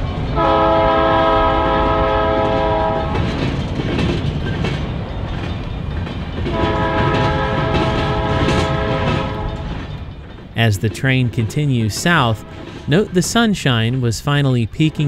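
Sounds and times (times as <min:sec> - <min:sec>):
train wheels rumbling: 0:00.0 - 0:15.0
wheels clicking over rail joints: 0:00.0 - 0:15.0
locomotive air horn: 0:00.4 - 0:03.3, 0:06.5 - 0:09.8.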